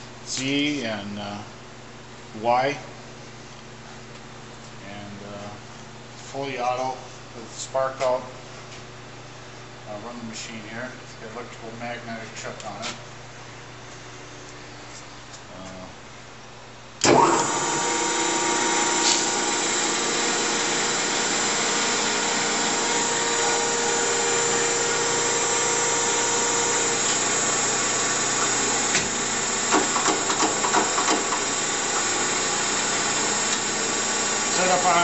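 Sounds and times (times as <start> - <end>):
grinder starting clunk: 17.0 - 33.8
surface grinder whirring hum: 17.0 - 35.0.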